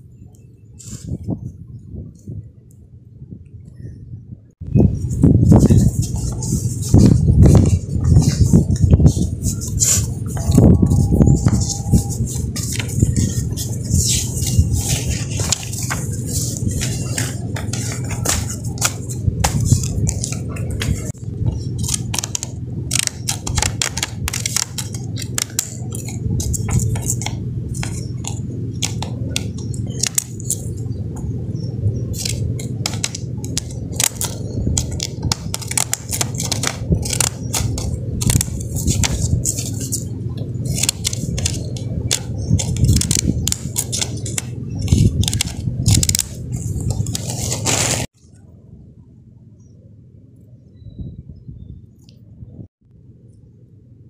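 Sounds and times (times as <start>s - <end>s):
steady low hum: 0.0s - 54.0s
paper rustling: 5.1s - 30.8s, 32.1s - 48.1s
scissors snipping paper: 5.6s - 30.8s, 32.1s - 40.1s, 40.7s - 48.1s.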